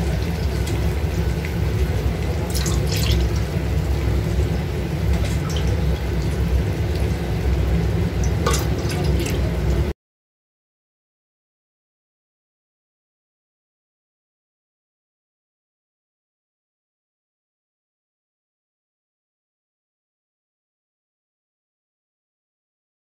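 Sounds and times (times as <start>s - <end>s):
bubbles ticking and popping: 0.0s - 3.8s, 5.0s - 7.1s, 8.2s - 9.8s
water heating in a pot: 0.0s - 9.9s.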